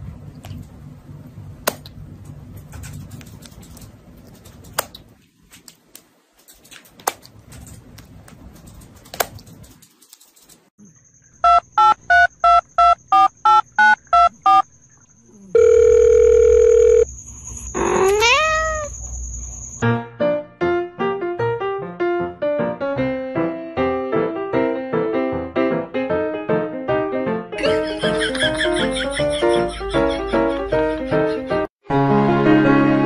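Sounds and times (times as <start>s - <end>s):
two-tone electronic beeps: 11.4s - 17.7s
steady electronic phone tone: 11.4s - 19.5s.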